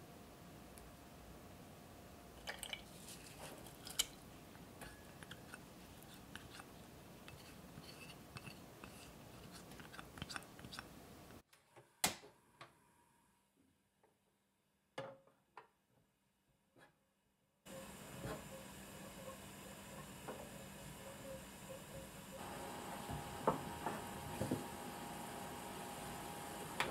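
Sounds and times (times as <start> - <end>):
spoon scraping saucepan: 4.8 - 10.9.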